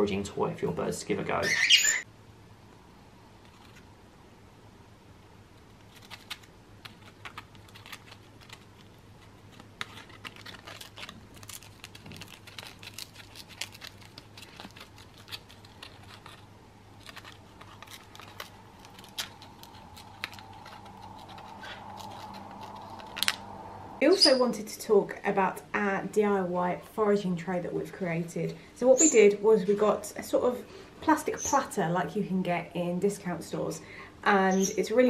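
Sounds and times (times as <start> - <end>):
bird tearing paper: 5.6 - 23.5.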